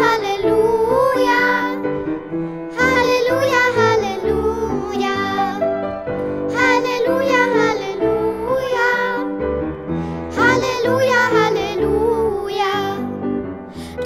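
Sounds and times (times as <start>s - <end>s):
children's worship song singing: 0.0s - 2.0s, 2.7s - 5.8s, 6.5s - 9.4s, 10.3s - 13.2s.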